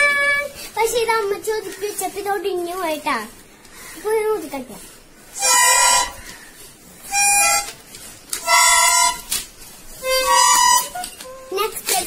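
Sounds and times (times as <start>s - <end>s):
toy horn reedy notes: 0.0s - 0.6s, 5.4s - 6.2s, 7.1s - 7.8s, 8.4s - 9.4s, 10.0s - 11.6s.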